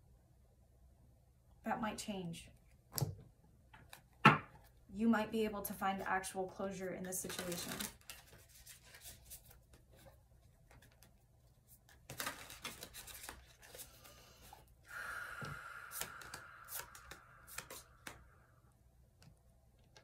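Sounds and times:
cards riffling and snapping: 0:07.3 - 0:11.2, 0:11.8 - 0:14.6, 0:15.9 - 0:18.3.

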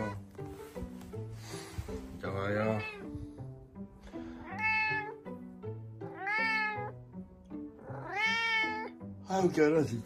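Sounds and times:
soft background music: 0:00.0 - 0:10.0
cat meowing: 0:02.7 - 0:03.1, 0:04.4 - 0:05.2, 0:06.0 - 0:07.0, 0:07.8 - 0:09.0.

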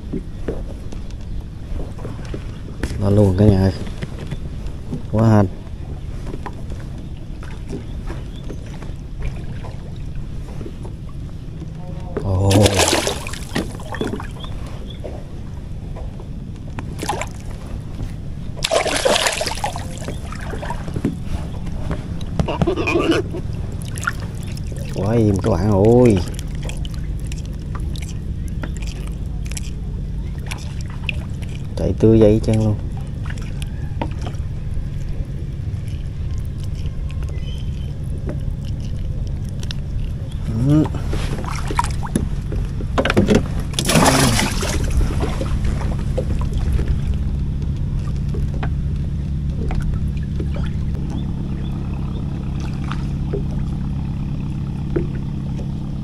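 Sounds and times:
low steady rumble: 0:00.0 - 0:56.0
steady low hum: 0:00.0 - 0:56.0
fish splashing in water: 0:12.2 - 0:15.1, 0:16.9 - 0:17.6, 0:18.4 - 0:56.0.

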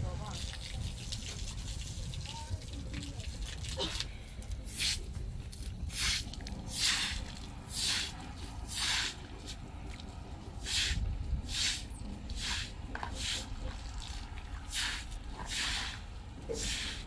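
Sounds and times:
broom sweeping wet concrete: 0:04.6 - 0:05.1, 0:05.8 - 0:09.6, 0:10.6 - 0:17.0.

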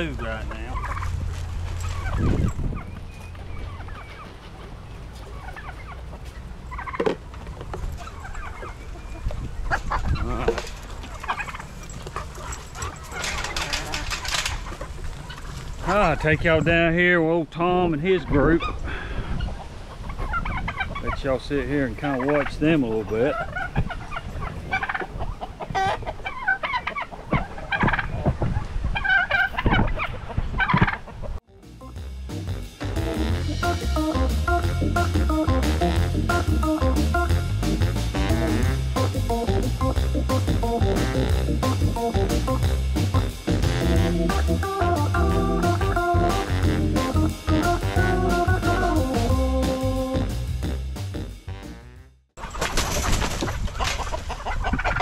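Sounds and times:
low rumble: 0:00.0 - 0:05.0
poultry chirping and calling: 0:00.0 - 0:16.8, 0:18.1 - 0:31.4, 0:44.0 - 0:50.1, 0:52.4 - 0:55.0.

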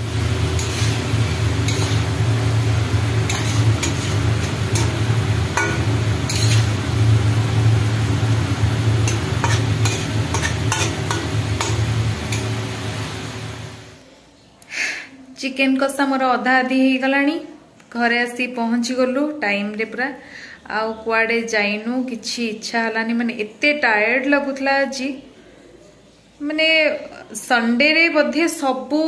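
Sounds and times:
food sizzling in a pan: 0:00.0 - 0:14.0
spatula scraping a pan: 0:00.4 - 0:12.6.

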